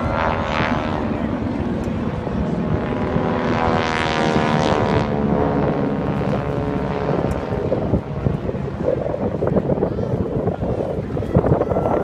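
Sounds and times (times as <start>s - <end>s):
propeller planes droning overhead: 0.0s - 12.0s.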